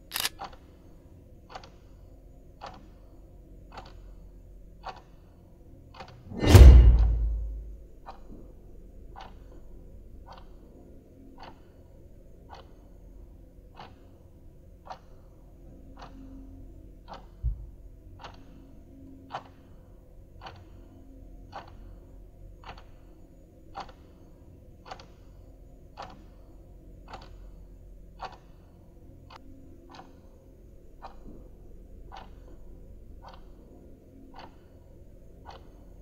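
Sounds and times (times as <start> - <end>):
clock ticking: 1.4 - 1.8, 2.6 - 3.0, 3.6 - 4.2, 4.8 - 5.3, 11.3 - 13.0, 13.6 - 14.2, 20.4 - 23.0, 23.8 - 24.2, 24.8 - 31.4, 32.0 - 36.0
dull low thump: 6.3 - 7.8.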